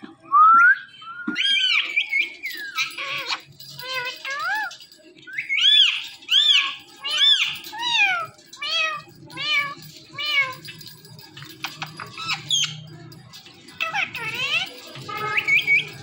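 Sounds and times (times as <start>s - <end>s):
parakeet imitating cat meow: 6.4s - 10.7s.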